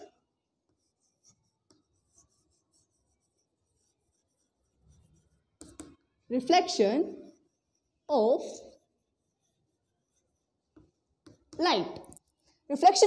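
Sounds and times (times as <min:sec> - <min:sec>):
chalk scratching on chalkboard: 0:00.5 - 0:11.7
light chalk taps: 0:00.7 - 0:03.9, 0:05.6 - 0:06.0, 0:10.1 - 0:12.2.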